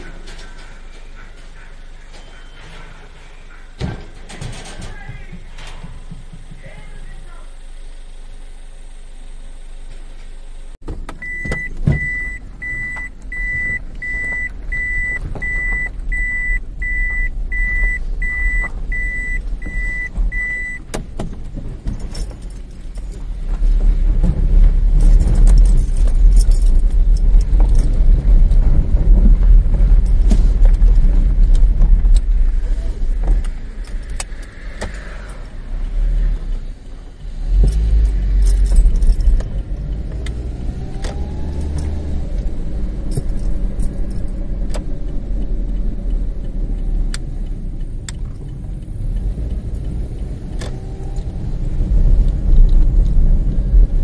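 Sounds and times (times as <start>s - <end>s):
car warning beeps: 0.0s - 3.8s, 11.1s - 21.0s
car engine rumble: 0.0s - 54.0s
road noise: 0.0s - 54.0s
small rattles: 21.0s - 35.4s.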